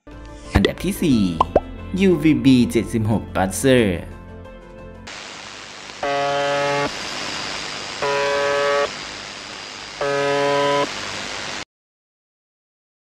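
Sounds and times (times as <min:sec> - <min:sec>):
short flat radio buzzes: 0:05.1 - 0:11.6
static hiss: 0:05.1 - 0:11.7.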